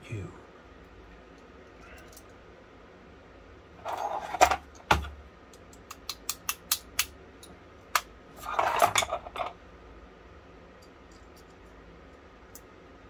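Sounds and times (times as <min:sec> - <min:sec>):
scraping rustle: 0:03.8 - 0:04.6.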